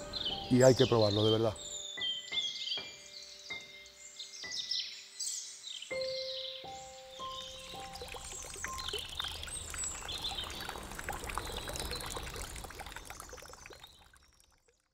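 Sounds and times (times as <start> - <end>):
small birds chirping: 0.0 - 14.9
running water rushing: 7.4 - 14.8.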